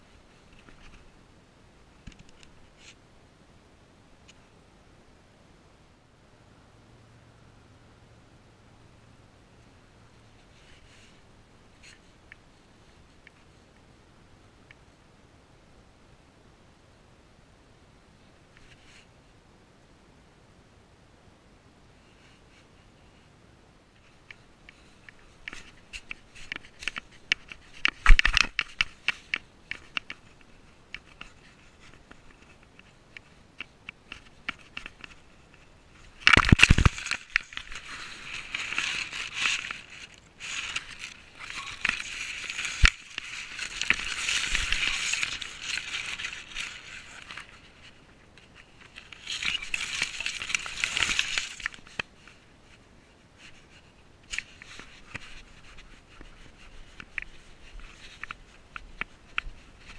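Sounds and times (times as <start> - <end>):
grass rustling and crackling: 9.6 - 13.8, 23.9 - 59.9
clicks and knocks on camera: 25.0 - 47.6.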